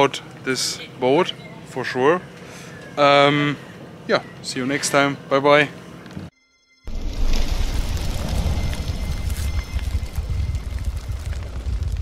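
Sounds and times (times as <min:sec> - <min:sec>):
deep rumble: 0:06.9 - 0:12.0.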